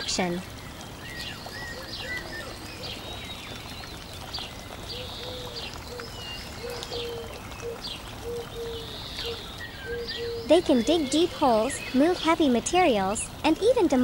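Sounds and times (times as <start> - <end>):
small birds chirping: 0.0 - 14.0
dove cooing: 4.9 - 12.4.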